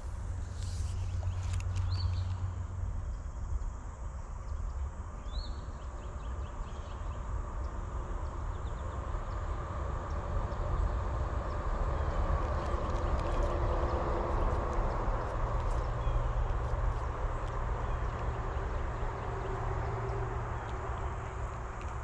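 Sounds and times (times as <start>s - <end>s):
wind rumbling on microphone: 0.0s - 22.0s
bird chirping: 0.8s - 2.5s, 4.4s - 9.4s, 11.5s - 22.0s.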